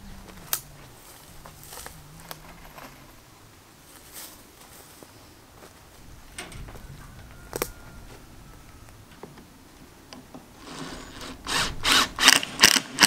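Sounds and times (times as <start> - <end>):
drill driving screws into wood: 10.6 - 13.0.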